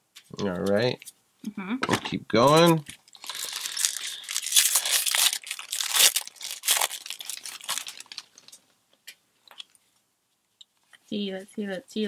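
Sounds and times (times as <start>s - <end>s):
foil wrapper tearing and crumpling: 2.5s - 8.6s.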